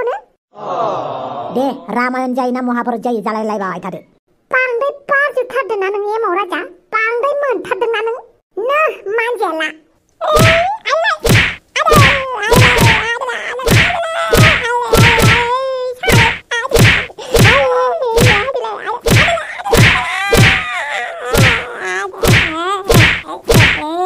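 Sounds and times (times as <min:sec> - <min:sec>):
sharp whacks of a broom: 0:10.4 - 0:17.6, 0:18.2 - 0:20.7, 0:21.3 - 0:23.9
person crying out in pain: 0:11.9 - 0:15.5, 0:19.1 - 0:22.6.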